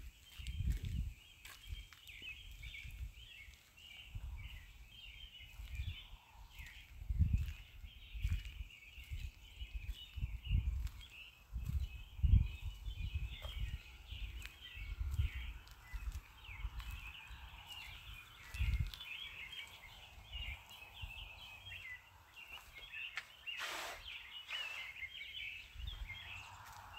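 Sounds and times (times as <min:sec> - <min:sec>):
birds chirping: 0:00.0 - 0:26.9
short hissing bursts: 0:23.5 - 0:25.0.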